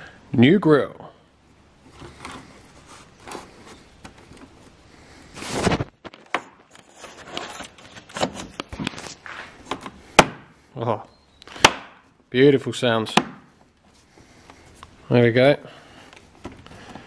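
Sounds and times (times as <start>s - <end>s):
plastic scraping and rubbing: 1.8s - 10.0s.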